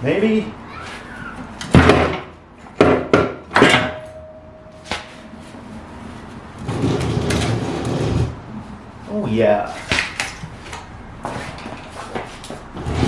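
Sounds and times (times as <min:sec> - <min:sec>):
sharp metal clunks: 0:01.7 - 0:05.1
transmission scraping rumble: 0:05.5 - 0:08.8.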